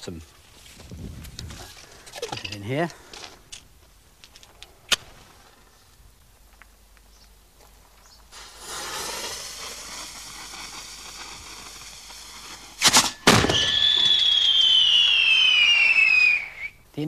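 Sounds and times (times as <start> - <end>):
sharp firework bangs: 8.3 - 16.7
falling whistle: 13.4 - 16.8.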